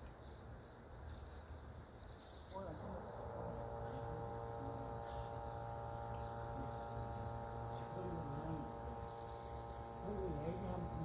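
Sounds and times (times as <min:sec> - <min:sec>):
electrical hum: 0:00.0 - 0:11.0
insect chirping in trills: 0:00.0 - 0:11.0.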